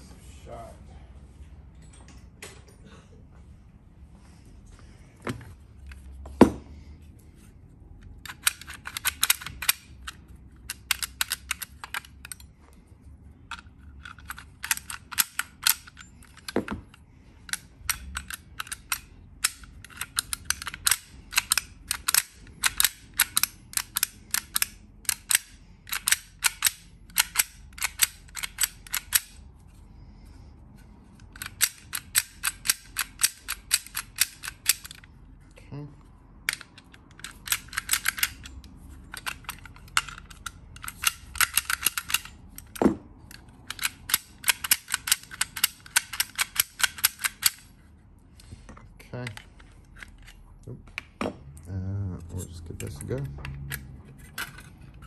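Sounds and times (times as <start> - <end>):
sharp metal clicks: 8.0 - 12.5, 13.5 - 29.4, 31.1 - 35.1, 36.4 - 47.7.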